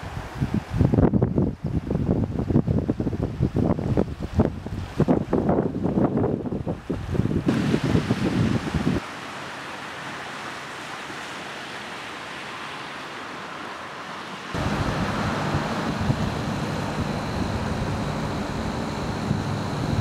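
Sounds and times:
wind rumbling on microphone: 0.0 - 9.0, 14.5 - 20.0
faint high whine: 12.5 - 20.0.

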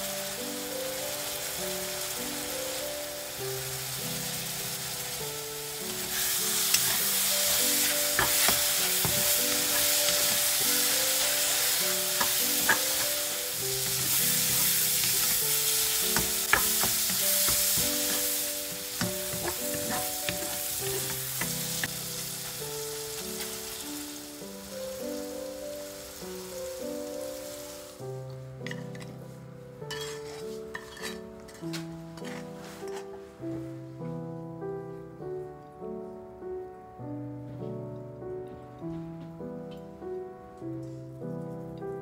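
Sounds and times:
mushrooms sizzling in a wok: 0.0 - 33.0
background music: 0.0 - 42.0
wooden spatula scraping pan: 6.0 - 11.3, 19.0 - 21.9, 29.9 - 33.2.

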